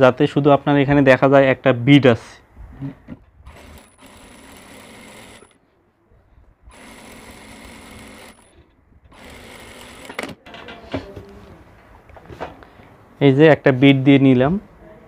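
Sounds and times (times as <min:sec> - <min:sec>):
industrial sewing machine stitching: 0:03.5 - 0:05.6, 0:06.7 - 0:10.4.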